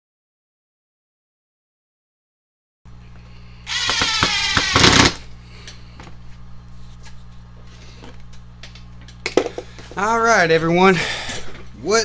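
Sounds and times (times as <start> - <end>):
cordless driver motor whine: 2.9 - 6.8.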